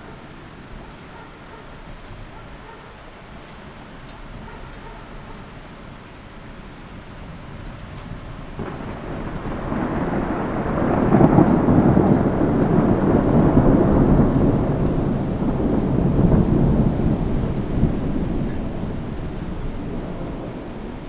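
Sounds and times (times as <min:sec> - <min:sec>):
rolling thunder: 0:07.0 - 0:21.0.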